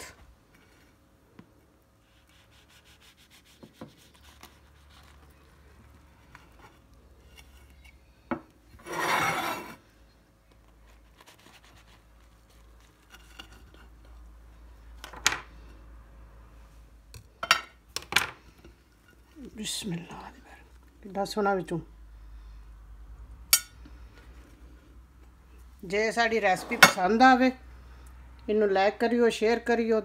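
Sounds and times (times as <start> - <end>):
knife sawing through crust: 2.1 - 5.2.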